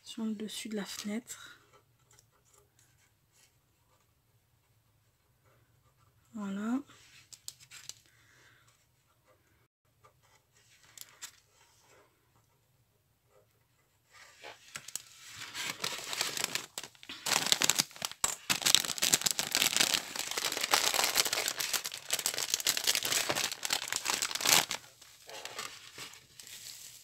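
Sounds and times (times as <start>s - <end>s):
foil bag crinkling: 14.7s - 27.0s.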